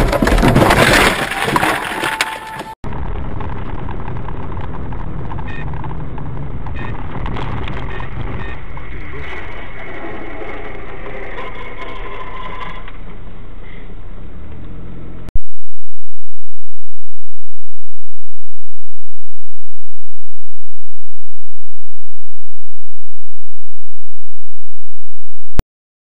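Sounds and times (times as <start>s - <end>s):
car road and engine noise: 2.9s - 11.6s, 12.8s - 15.3s.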